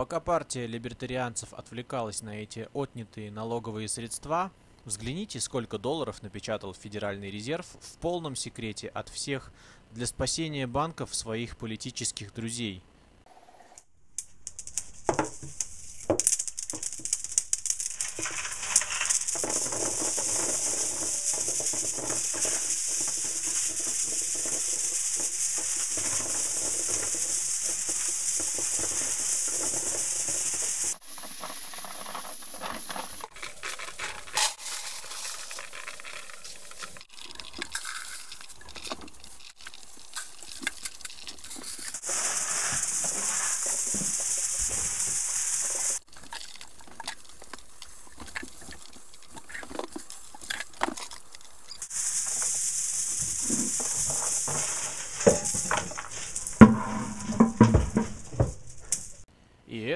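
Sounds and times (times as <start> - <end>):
coins clattering onto tile floor: 14.4 - 33.2.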